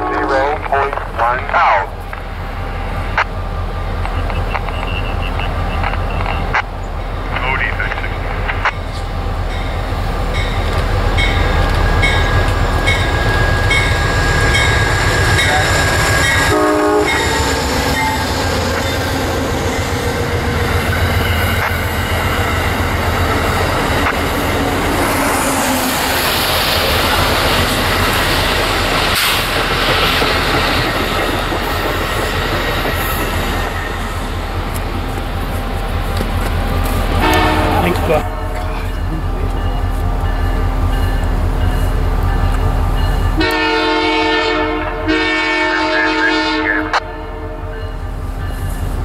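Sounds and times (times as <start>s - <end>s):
train horn blast: 0.0s - 1.0s, 15.4s - 18.3s, 37.1s - 38.8s, 43.4s - 47.8s
diesel locomotive idling: 0.1s - 45.8s
locomotive bell ringing: 9.5s - 20.0s, 37.2s - 43.6s, 47.1s - 48.8s
train wheels clattering on rails: 26.2s - 43.6s.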